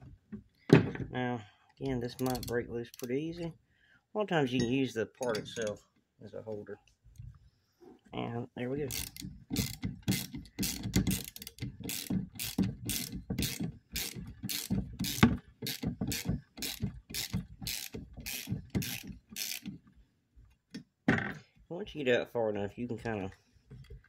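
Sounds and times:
ratchet wrench clicking: 2.1 - 3.1, 8.9 - 19.8.

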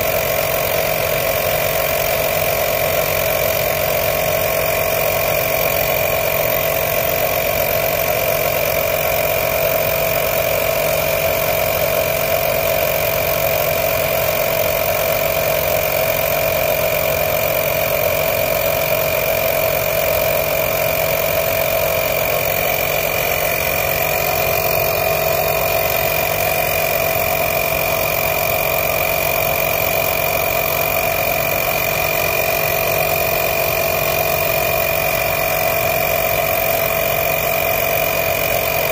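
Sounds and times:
air compressor humming: 0.0 - 38.9.

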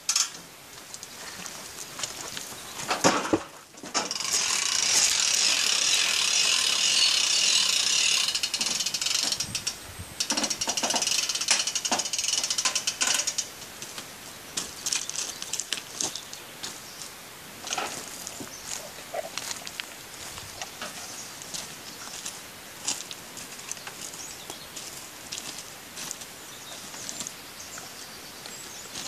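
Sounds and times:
ratchet clicking rapidly: 4.0 - 13.5
metal rattles and clanks: 8.2 - 13.6.

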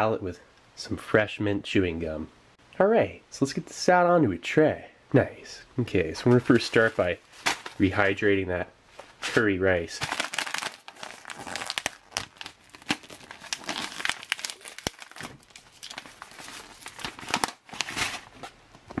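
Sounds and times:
foil pouch tearing and crinkling: 10.0 - 18.6.

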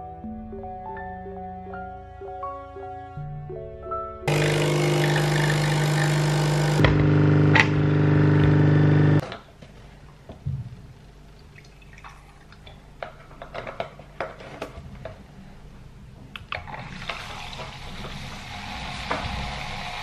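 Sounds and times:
milk pouring into a jug: 16.6 - 20.0.

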